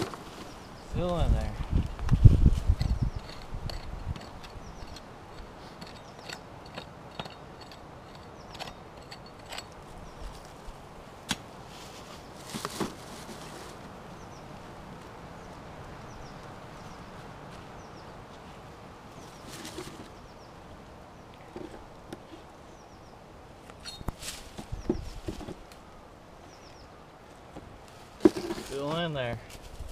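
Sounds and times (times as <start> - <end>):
hands scraping dry dirt and gravel: 0.0 - 14.0, 27.8 - 29.9
loose soil rushing: 27.9 - 29.9.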